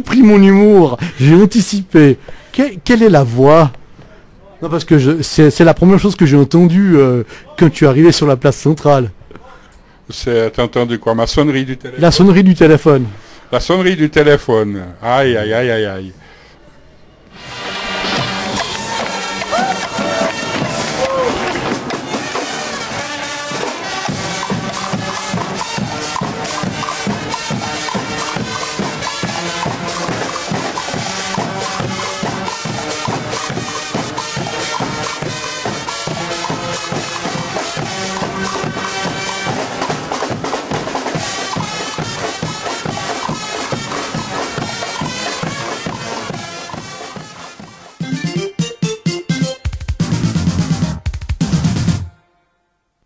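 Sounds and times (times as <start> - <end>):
music with steady drum beat: 18.1 - 52.1.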